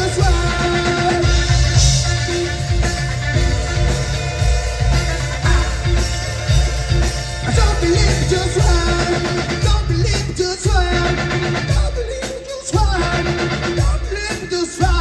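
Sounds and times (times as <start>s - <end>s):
man singing: 0.0s - 1.9s, 7.4s - 15.0s
live rock band playing: 0.0s - 15.0s.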